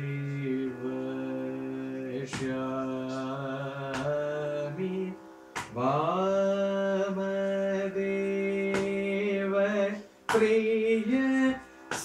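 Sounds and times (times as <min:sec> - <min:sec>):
man singing long notes: 0:00.0 - 0:12.0
sharp hand strikes: 0:02.3 - 0:04.4, 0:05.5 - 0:05.9, 0:08.7 - 0:09.1, 0:10.3 - 0:10.6.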